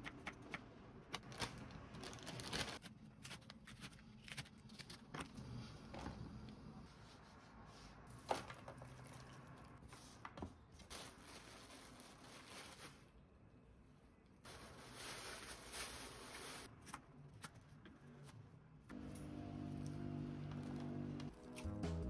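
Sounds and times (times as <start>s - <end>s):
plastic bag crinkling: 1.1s - 2.8s, 14.5s - 16.7s.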